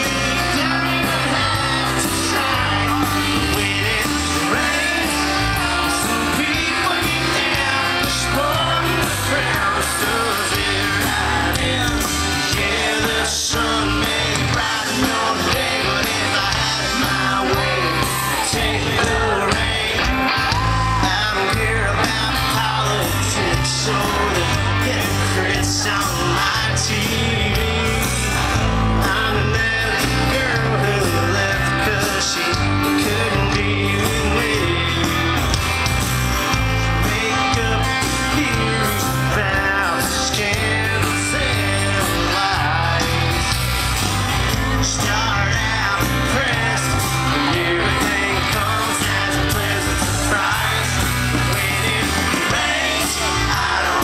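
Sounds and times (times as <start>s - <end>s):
lead vocals singing: 0.0s - 54.0s
live country rock band: 0.0s - 54.0s.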